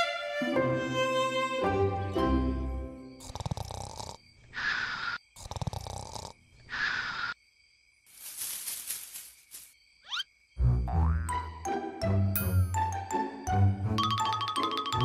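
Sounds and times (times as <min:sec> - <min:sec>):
music: 0:00.0 - 0:03.2, 0:10.6 - 0:15.0
cartoon snoring: 0:03.2 - 0:06.4.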